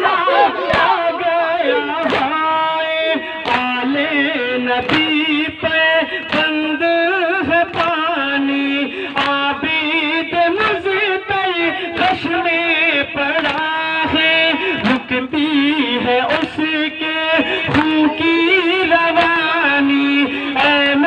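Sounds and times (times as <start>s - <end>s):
man chanting over microphone: 0.0s - 21.0s
hands beating on chests: 0.6s - 1.2s, 2.0s - 2.4s.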